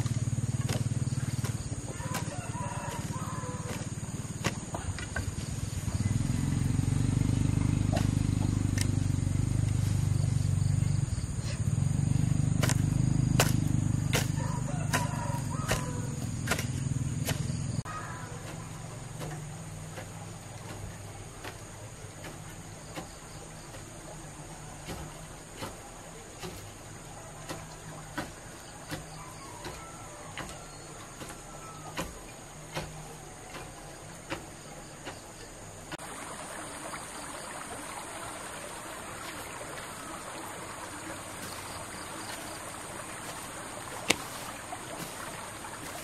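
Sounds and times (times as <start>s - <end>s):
hoe blade striking soil: 0.0s - 6.1s, 7.5s - 10.2s, 12.2s - 36.0s, 41.3s - 46.0s
high insect buzz: 36.1s - 46.0s.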